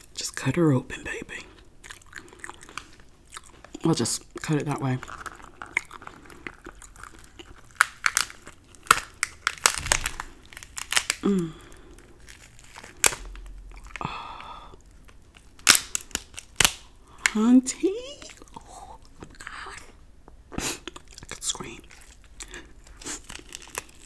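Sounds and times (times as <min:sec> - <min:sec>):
lobster shell cracking: 0:04.4 - 0:17.4, 0:21.6 - 0:24.0.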